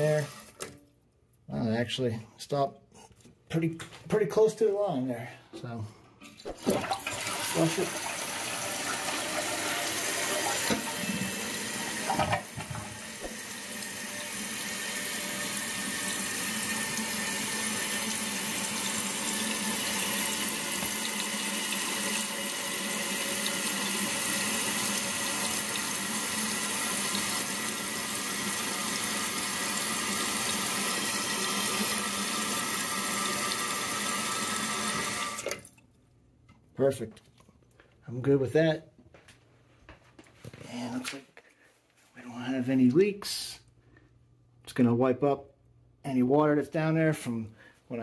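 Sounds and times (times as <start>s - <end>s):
toilet tank refilling hiss: 6.5s - 35.6s
toilet flush draining: 6.5s - 35.7s.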